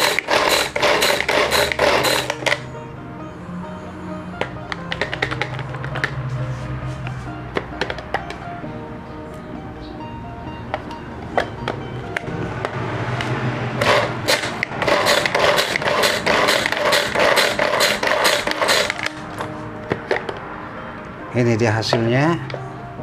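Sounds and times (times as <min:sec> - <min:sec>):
background music: 0:00.0 - 0:23.0
chopper blades whirring: 0:12.3 - 0:19.1.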